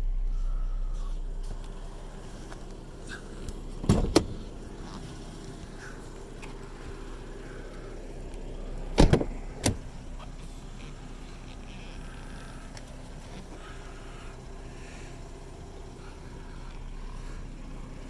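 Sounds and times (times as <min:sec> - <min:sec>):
steady low hum: 0:00.0 - 0:18.0
car doors clunking: 0:02.5 - 0:07.3, 0:08.7 - 0:13.6.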